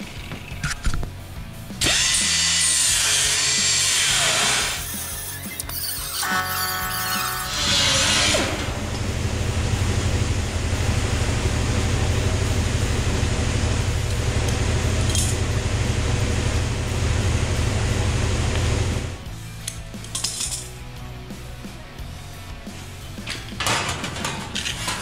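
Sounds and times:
pneumatic cut-off tool: 1.8 - 8.8
low machine drone: 7.4 - 19.4.

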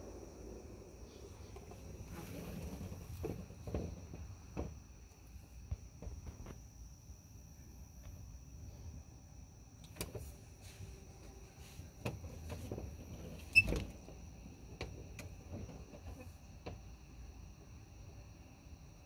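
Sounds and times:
distant fireworks popping: 0.0 - 5.0
night insects chirring: 0.0 - 19.0.

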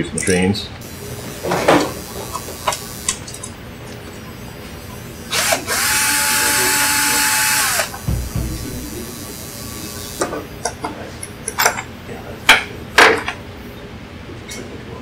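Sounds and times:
cordless drill motor spinning: 0.8 - 3.6, 5.3 - 10.5
small clicks: 1.8 - 3.5
dull knock: 8.0 - 8.9.

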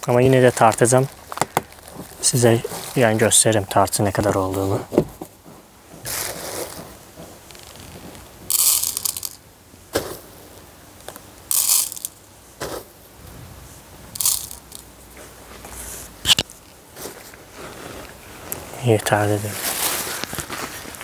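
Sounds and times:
plastic bag crinkling: 0.1 - 4.7, 7.5 - 9.4, 19.3 - 21.0
granules rattling into tray: 8.5 - 9.4, 11.5 - 12.2, 14.2 - 14.8.

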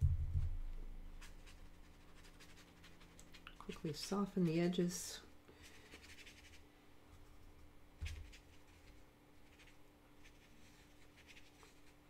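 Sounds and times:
low steady hum: 0.0 - 12.0
brush stroking paper: 1.2 - 4.8, 5.6 - 6.6, 8.0 - 12.0.

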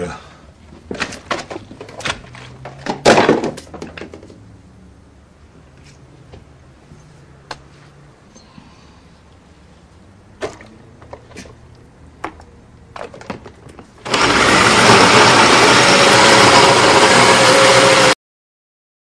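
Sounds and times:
electric blender running: 14.0 - 18.2.

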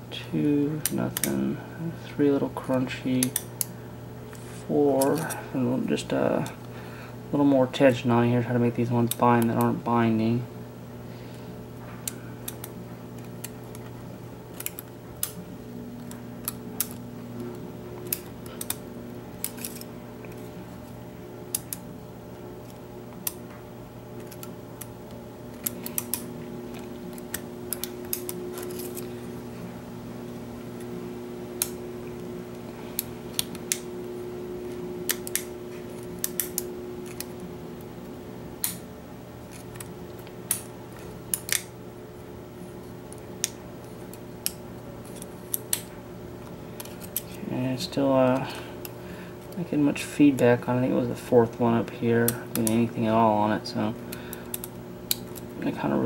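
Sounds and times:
low hum: 0.0 - 56.0
lock pick metallic clicks: 41.3 - 41.7.

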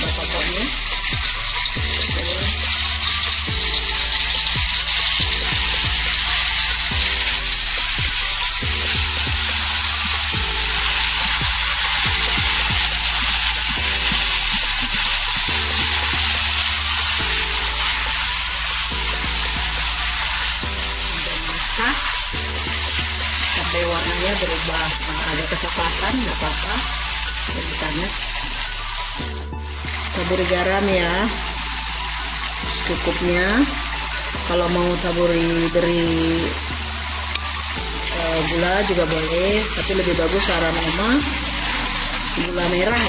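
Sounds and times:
spatula stirring in wok: 0.0 - 34.4
chili paste sizzling in hot oil: 0.0 - 43.0.

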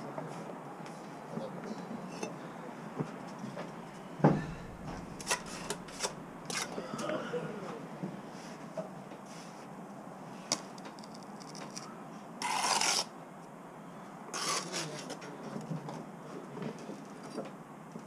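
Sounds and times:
loud scraping rasps: 4.3 - 6.9, 14.3 - 14.9.

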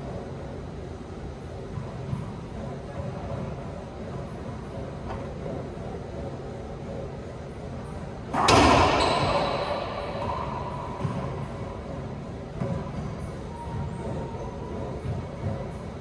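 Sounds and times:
racquetball struck by racquet: 8.3 - 13.9.

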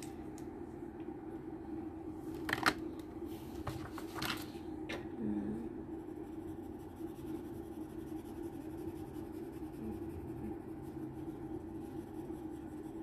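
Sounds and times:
steady low hum: 0.0 - 13.0
pencil scratching on paper: 6.0 - 13.0.

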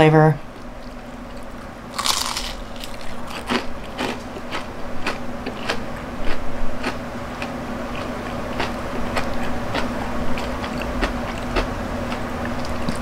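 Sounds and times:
crisp chewing crunches: 0.6 - 13.0
crunchy bite into fried chicken: 1.9 - 4.2.

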